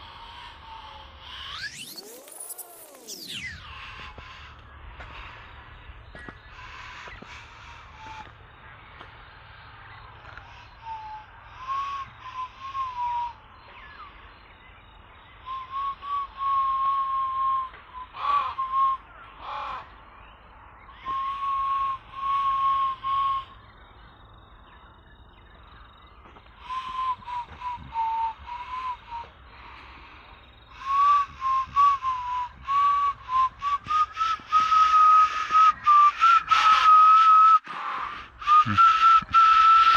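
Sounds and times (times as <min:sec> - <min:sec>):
person whistling a slow tune: 0:00.0 - 0:05.5, 0:06.1 - 0:08.4, 0:10.2 - 0:19.9, 0:20.9 - 0:24.2, 0:26.3 - 0:39.9.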